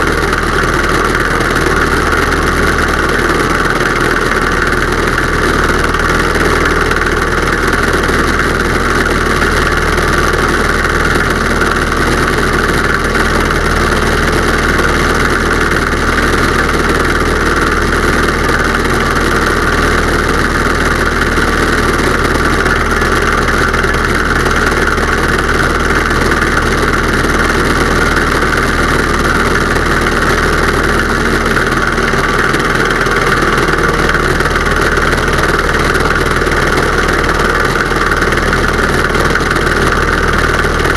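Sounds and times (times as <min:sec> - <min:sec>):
propeller plane engine drone: 0:00.0 - 0:40.9.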